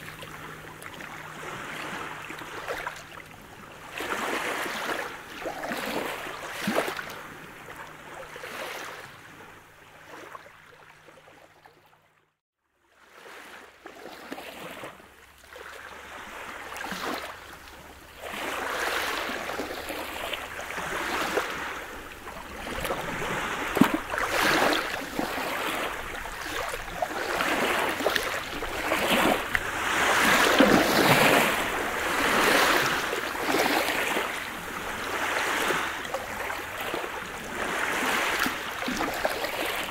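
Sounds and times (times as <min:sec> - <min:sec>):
waves washing over pebbles: 0:18.2 - 0:39.9.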